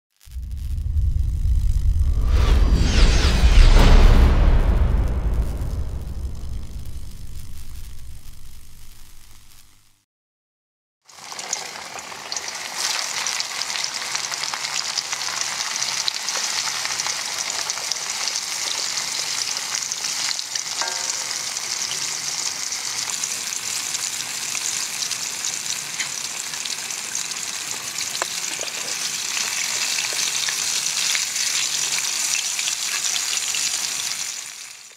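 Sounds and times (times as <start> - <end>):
fish sizzling in hot oil: 6.4 - 10.0, 11.0 - 34.9.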